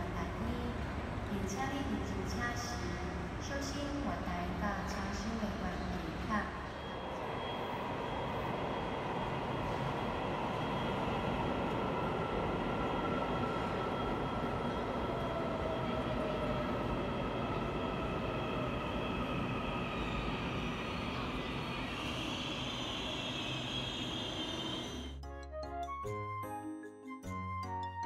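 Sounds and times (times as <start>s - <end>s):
train motor whine: 20.0s - 25.2s.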